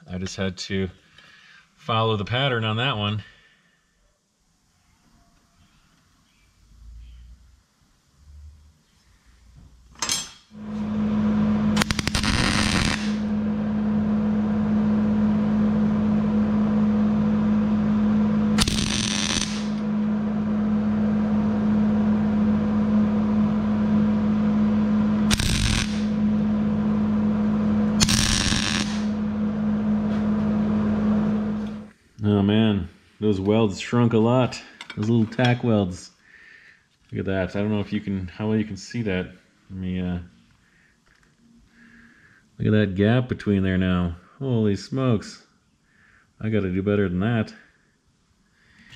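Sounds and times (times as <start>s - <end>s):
arc welding crackling buzz: 10.6s - 14.8s, 17.4s - 20.2s, 24.8s - 31.9s.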